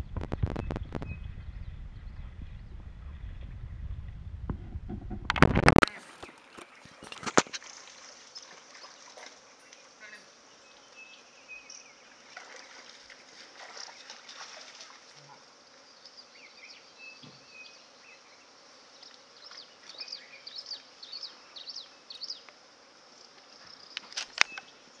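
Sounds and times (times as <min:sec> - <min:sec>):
high insect buzz: 0:04.9 - 0:25.0.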